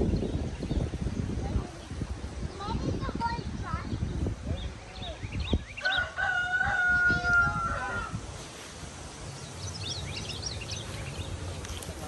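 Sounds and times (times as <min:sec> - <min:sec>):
small birds chirping: 0:00.0 - 0:12.0
rooster crowing: 0:05.8 - 0:08.2.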